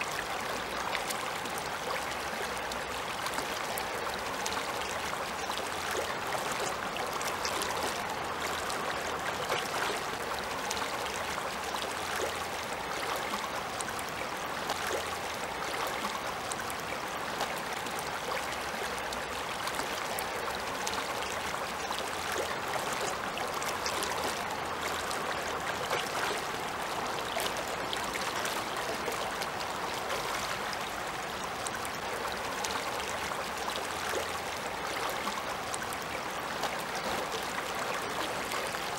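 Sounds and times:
river water rushing: 0:00.0 - 0:38.9
water splashing over stones: 0:05.4 - 0:13.3.

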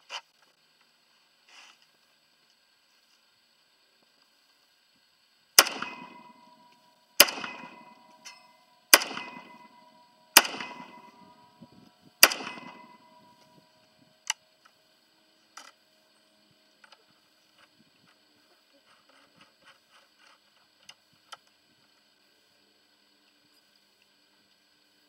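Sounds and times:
faint sharp cracks: 0:05.6 - 0:13.6
pistol shots with echoing tail: 0:05.6 - 0:13.7.

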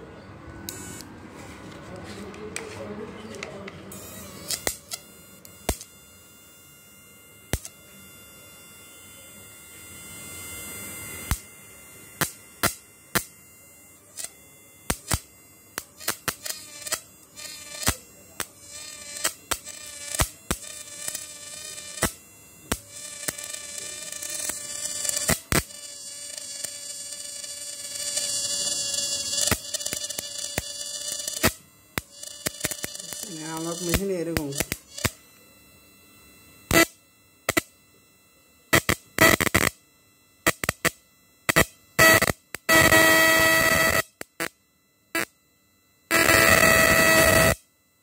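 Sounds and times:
inverter buzzing whine: 0:00.0 - 0:48.0
sharp electric snaps: 0:03.3 - 0:06.0, 0:07.5 - 0:07.8, 0:10.3 - 0:11.5, 0:12.1 - 0:13.4, 0:14.0 - 0:35.3, 0:36.7 - 0:37.8, 0:38.7 - 0:39.8, 0:40.4 - 0:45.4, 0:46.1 - 0:47.6.

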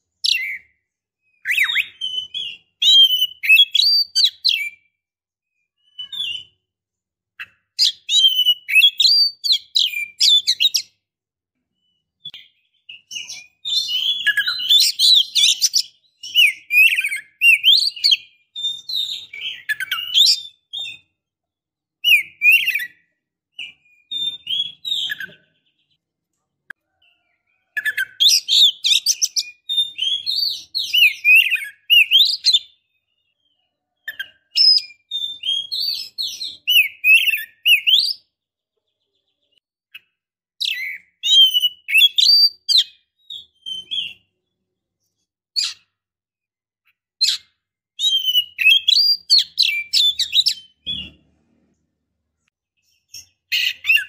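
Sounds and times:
bird chirping and whistling: 0:00.2 - 0:04.9, 0:05.8 - 0:06.6, 0:07.4 - 0:10.9, 0:12.2 - 0:21.1, 0:22.0 - 0:25.8, 0:27.8 - 0:32.8, 0:34.0 - 0:38.3, 0:40.6 - 0:44.3, 0:45.6 - 0:45.8, 0:47.2 - 0:51.1, 0:52.8 - 0:54.0.

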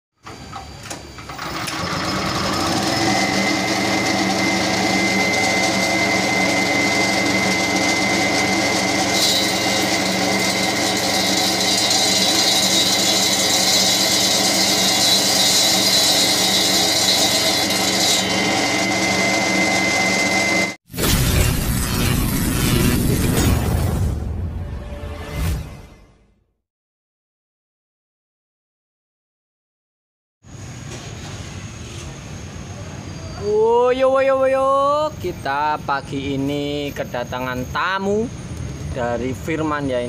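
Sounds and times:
petrol engine running: 0:00.2 - 0:12.0
blade grinding concrete: 0:02.0 - 0:23.4
thin steady whine: 0:30.5 - 0:40.0.

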